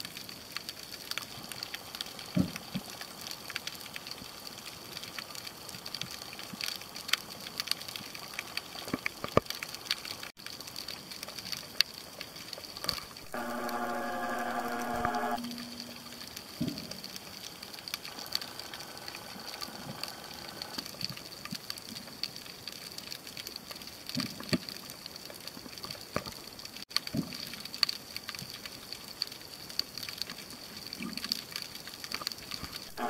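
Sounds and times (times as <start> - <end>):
underwater clicking crackle: 0.0 - 33.0
thin high tone: 13.3 - 20.8.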